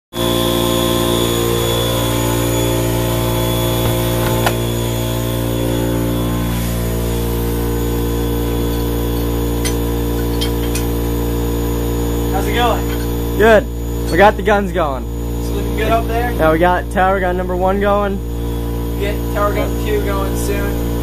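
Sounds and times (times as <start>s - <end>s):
snowmaking machine drone: 0.2s - 14.1s.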